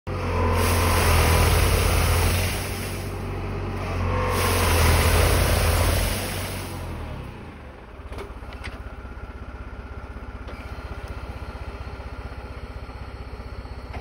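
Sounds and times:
tractor engine: 0.1 - 14.0.

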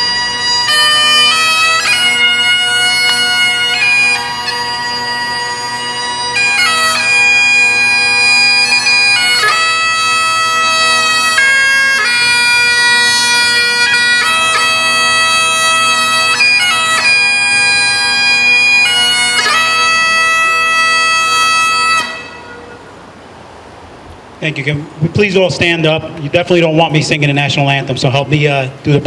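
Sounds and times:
bagpipes playing a tune: 0.0 - 23.2.

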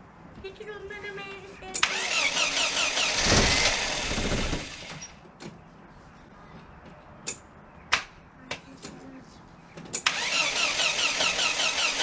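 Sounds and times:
starter motor cranking engine: 1.8 - 5.0, 10.0 - 12.0.

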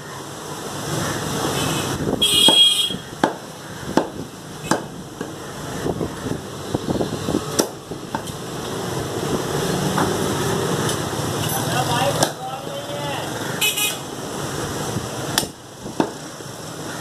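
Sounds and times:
cleaver chopping on wooden block: 3.2 - 5.4, 7.5 - 8.3, 15.4 - 16.2.

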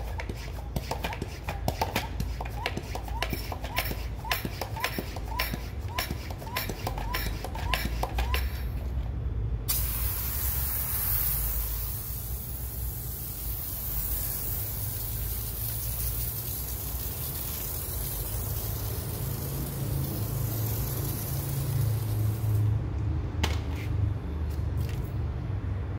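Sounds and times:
pressure sprayer hissing: 0.0 - 8.8, 9.7 - 22.8.

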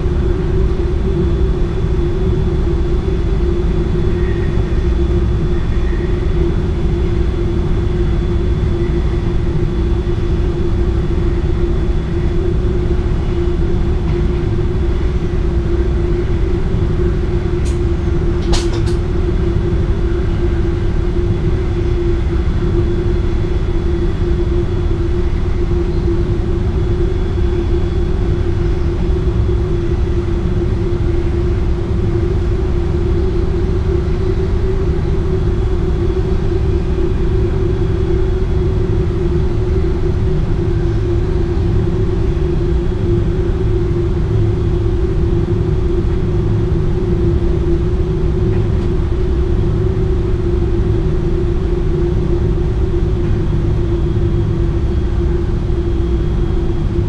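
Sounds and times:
constant hum: 0.0 - 57.0
train cab low rumble: 0.0 - 57.0.

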